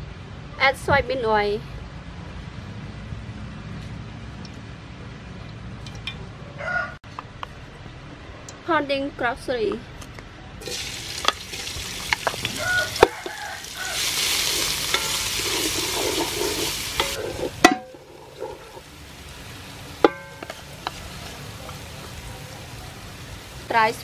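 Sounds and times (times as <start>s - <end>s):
utensil scraping pan: 10.6s - 18.9s
spice paste sizzling in oil: 10.6s - 24.0s
utensil knocking on pan: 14.9s - 18.1s.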